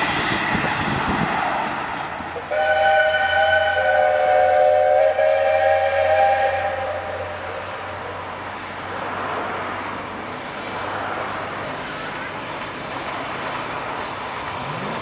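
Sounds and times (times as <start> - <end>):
train running rumble: 0.0 - 15.0
steam locomotive whistle: 2.4 - 7.9.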